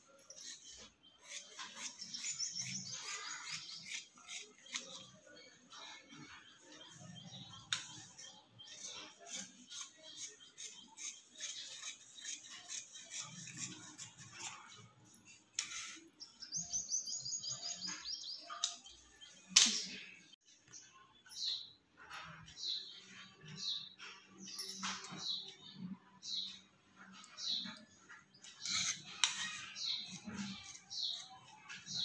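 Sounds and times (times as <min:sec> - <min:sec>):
high bird chirps: 0:00.0 - 0:13.8, 0:15.6 - 0:21.8.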